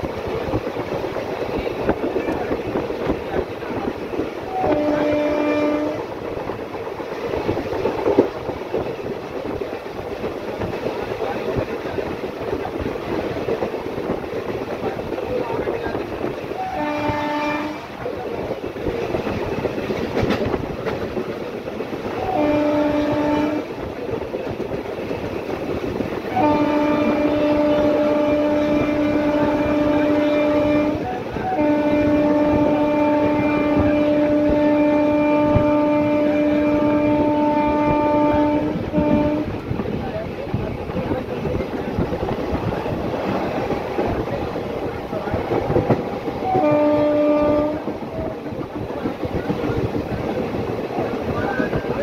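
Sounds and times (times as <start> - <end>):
train rumbling: 0.0 - 52.0
train horn blasts: 4.5 - 6.3, 16.5 - 18.0, 22.2 - 23.8, 26.3 - 39.6, 46.4 - 48.0.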